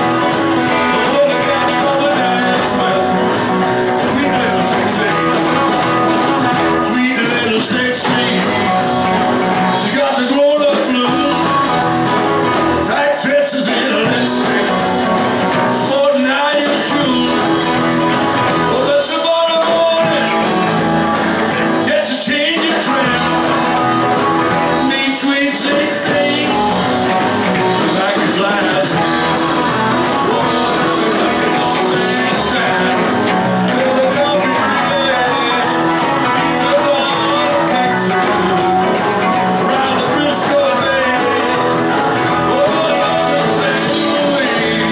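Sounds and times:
bass guitar: 0.0s - 44.9s
drums: 0.0s - 44.9s
electric guitars: 0.0s - 44.9s
keyboard: 0.0s - 44.9s.

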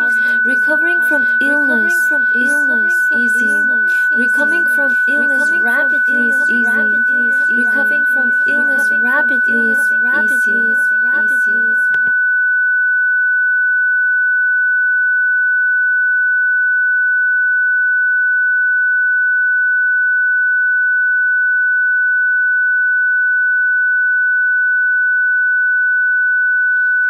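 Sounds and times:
high-pitched electronic tone: 0.0s - 12.1s.

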